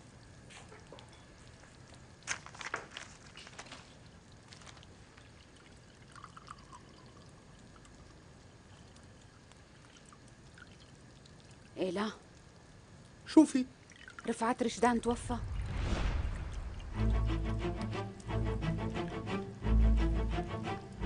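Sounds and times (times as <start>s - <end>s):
low steady hiss: 0.0s - 21.0s
paper rustling: 2.3s - 4.9s.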